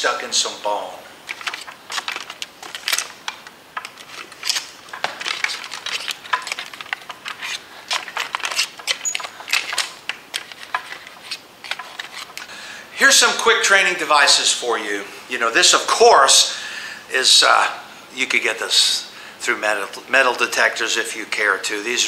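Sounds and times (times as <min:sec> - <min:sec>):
plastic ribs clicking and rattling: 0:01.2 - 0:12.5.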